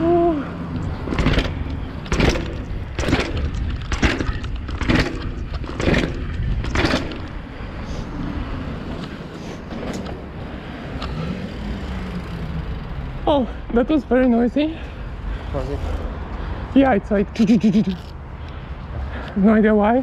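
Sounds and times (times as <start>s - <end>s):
tyre noise on paving: 0.0s - 20.0s
bike wheels and frame knocking: 0.8s - 7.5s.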